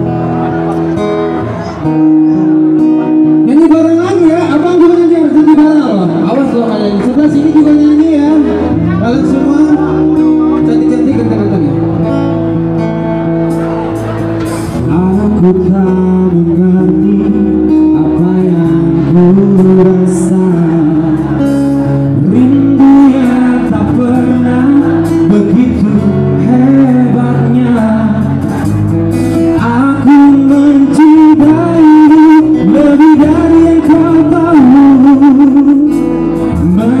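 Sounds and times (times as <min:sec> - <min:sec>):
guitar accompaniment: 0:00.0 - 0:37.0
man singing a pop ballad: 0:03.4 - 0:12.4, 0:14.6 - 0:37.0.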